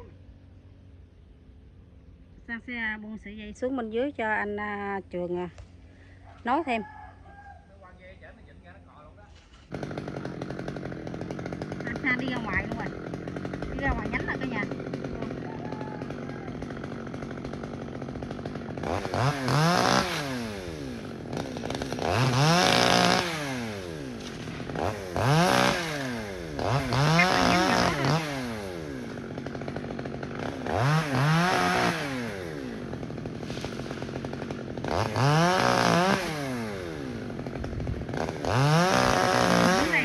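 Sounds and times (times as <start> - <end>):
chainsaw revving: 9.6 - 40.0.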